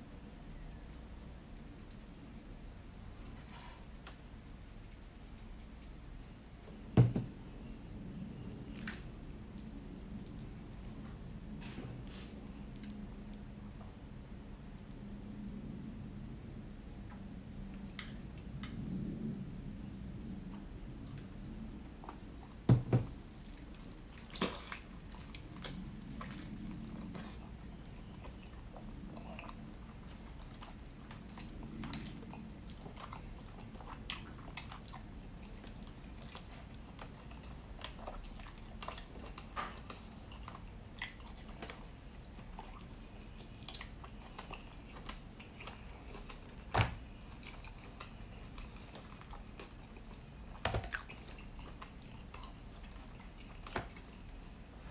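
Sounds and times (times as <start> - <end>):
close chewing mouth sounds: 8.4 - 11.3, 23.3 - 54.9.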